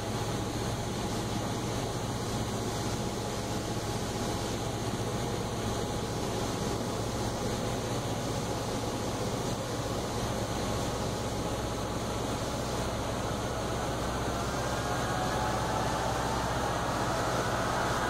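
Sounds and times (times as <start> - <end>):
airplane engine drone: 0.0 - 18.0
faint high whine: 10.7 - 18.0
rushing air: 11.3 - 18.0.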